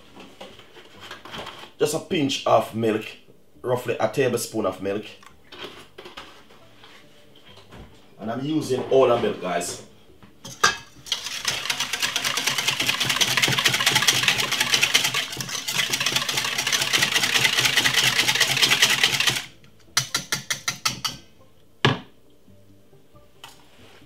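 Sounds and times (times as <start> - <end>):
whisk clicking against metal bowl: 10.5 - 21.2.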